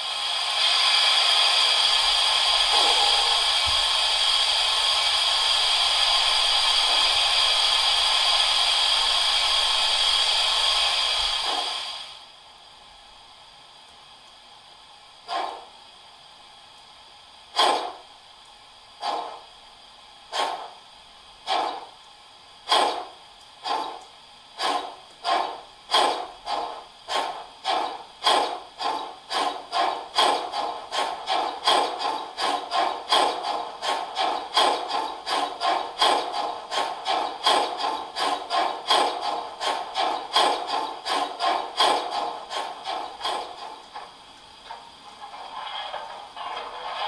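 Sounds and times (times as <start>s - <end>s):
steam locomotive chuffs from loudspeaker: 0.0s - 12.2s, 15.2s - 15.8s, 17.5s - 18.1s, 19.0s - 19.6s, 20.3s - 22.0s, 22.6s - 24.0s, 24.6s - 44.2s
faint steady hiss: 0.0s - 25.9s.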